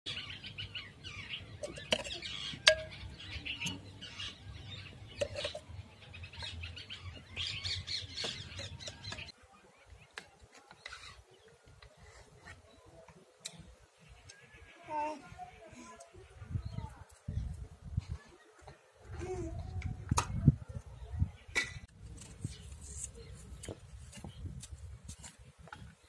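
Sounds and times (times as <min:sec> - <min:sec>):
birds chirping and calling: 0:00.1 - 0:24.6.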